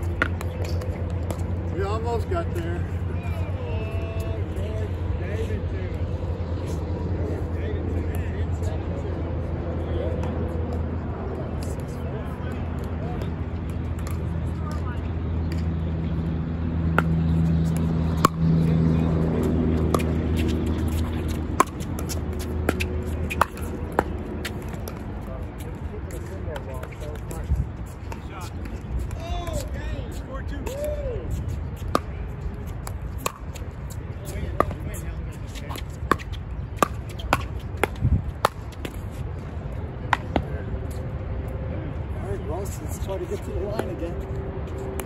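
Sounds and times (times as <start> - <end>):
pickleball paddles striking ball: 0.0 - 1.6, 16.9 - 25.1, 32.8 - 33.6, 35.6 - 39.0
low vehicle engine hum: 0.0 - 45.0
wind rumble on microphone: 2.6 - 45.0.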